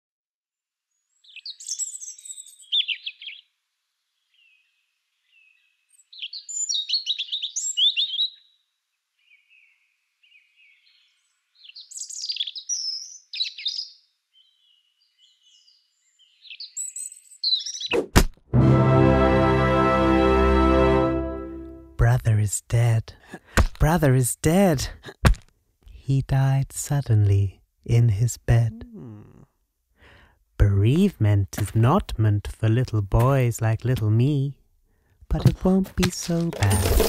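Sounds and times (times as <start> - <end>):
songbird chirps and trills: 0.9 - 17.9
faint soft bird calls: 1.0 - 17.9.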